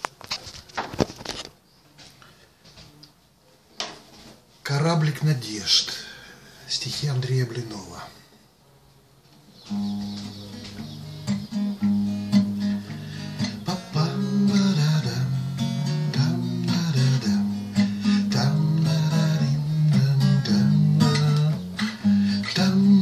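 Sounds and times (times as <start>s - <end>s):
acoustic guitar chords: 9.7s - 23.0s.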